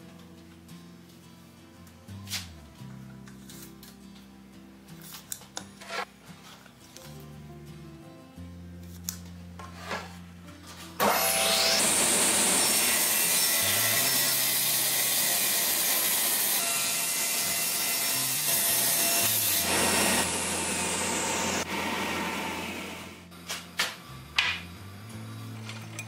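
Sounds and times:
table saw ripping wood: 11.0s - 23.9s.

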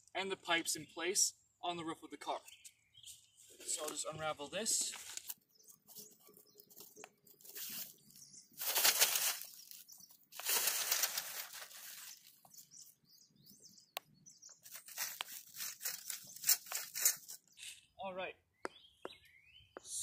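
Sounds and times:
plastic tarp rustling and flapping: 8.6s - 12.3s.

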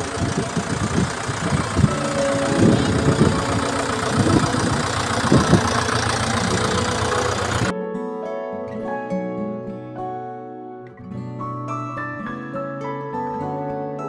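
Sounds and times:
tractor engine idling roughly: 0.0s - 7.7s.

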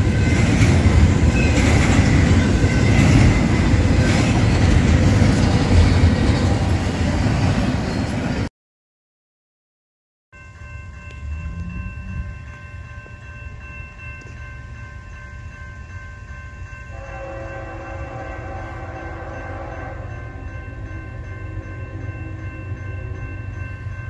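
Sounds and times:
freight train rumbling: 0.0s - 8.5s, 10.4s - 24.0s
locomotive horn: 16.9s - 20.9s.

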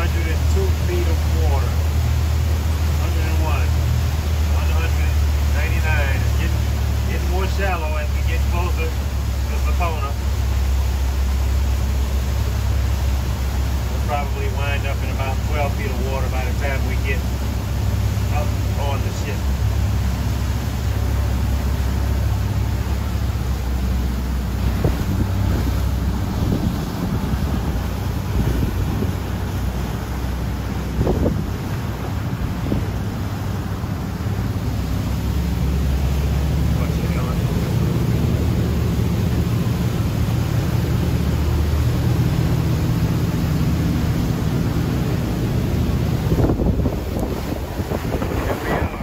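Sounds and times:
boat engine low rumble: 0.0s - 49.0s
water rushing from hull: 0.0s - 49.0s
wind buffeting microphone: 23.9s - 35.7s, 44.5s - 49.0s.

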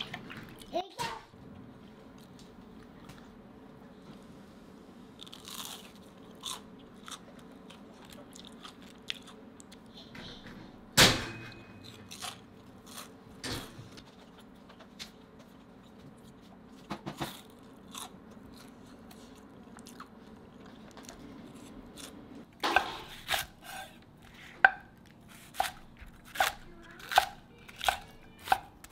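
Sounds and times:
food crunching: 5.1s - 9.9s, 11.8s - 13.2s, 15.4s - 22.6s.

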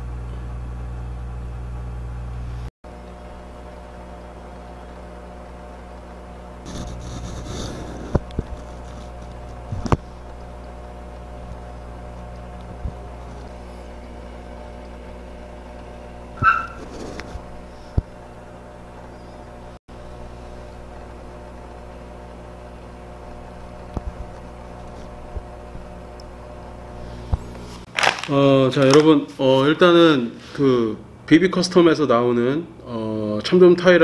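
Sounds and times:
water pump humming: 0.0s - 28.5s
short high squeak: 16.4s - 16.9s.

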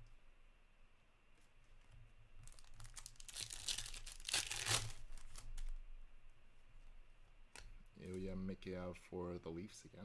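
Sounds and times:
foil wrapper tearing and crinkling: 2.4s - 5.8s.

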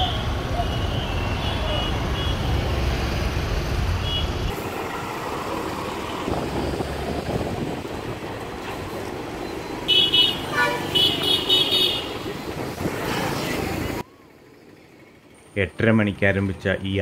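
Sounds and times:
vehicle horns tooting: 0.0s - 2.6s, 4.0s - 4.6s, 9.8s - 12.6s
street traffic: 0.0s - 17.0s.

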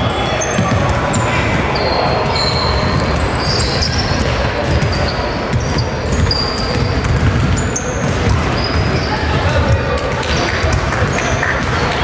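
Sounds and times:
sneakers squeaking: 0.0s - 12.0s
basketball dribbling on wooden floor: 4.6s - 9.0s.

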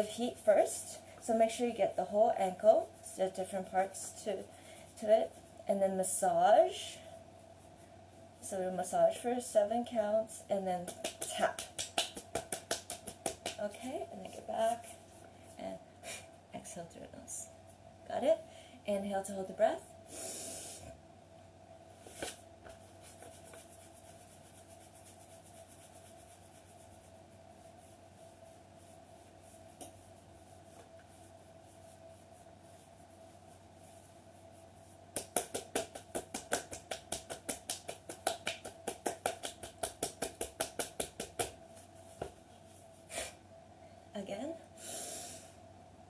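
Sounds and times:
faint steady hum: 0.0s - 46.0s
hands rubbing skin: 1.3s - 6.2s, 10.6s - 15.6s, 22.0s - 43.1s
palms tapping on skin: 10.8s - 13.7s, 35.1s - 42.4s.

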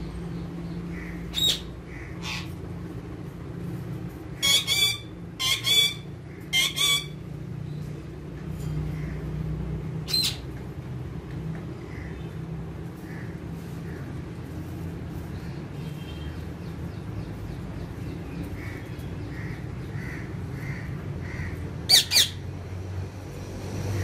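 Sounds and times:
steady low hum: 0.0s - 23.6s
parakeets squawking: 0.7s - 2.8s, 4.2s - 7.3s, 9.9s - 10.6s, 18.5s - 22.4s.

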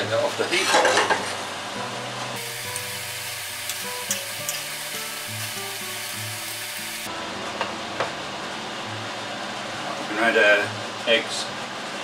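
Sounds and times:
background music with held notes: 1.0s - 11.6s
pasta sizzling in a frying pan: 2.4s - 7.1s.

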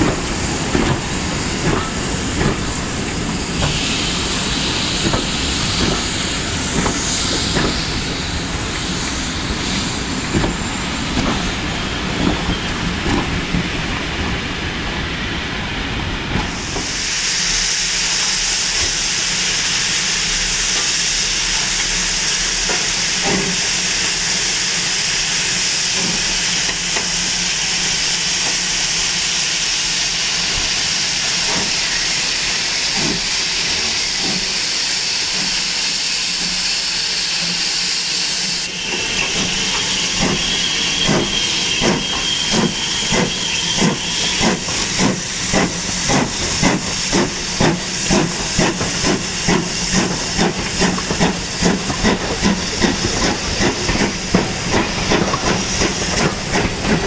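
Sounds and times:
steam locomotive exhaust chuffing: 0.0s - 57.0s
steam locomotive hissing: 0.0s - 57.0s
faint high squeal: 38.5s - 44.4s.

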